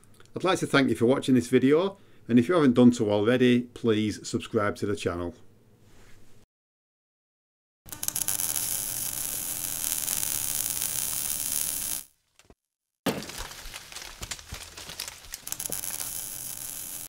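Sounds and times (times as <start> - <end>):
sizzling hiss with crackle: 7.9 - 12.1, 15.5 - 17.0.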